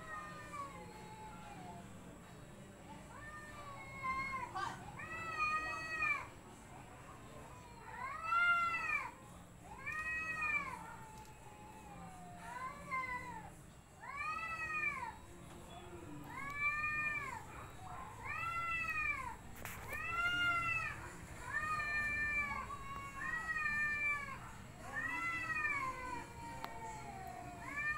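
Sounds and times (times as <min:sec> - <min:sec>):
cats yowling: 0:00.0 - 0:01.8, 0:03.1 - 0:06.3, 0:07.3 - 0:15.2, 0:16.3 - 0:27.9.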